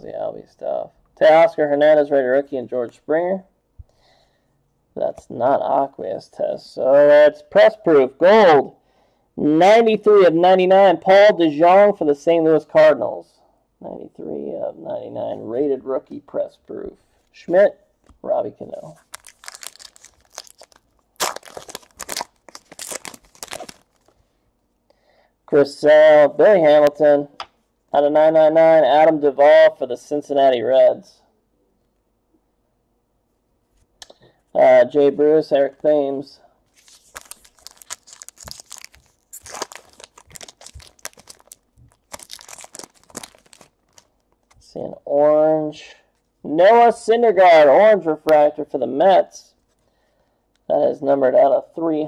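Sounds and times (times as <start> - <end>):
trading cards crinkling and rustling: 18.0 - 24.2, 36.7 - 44.7.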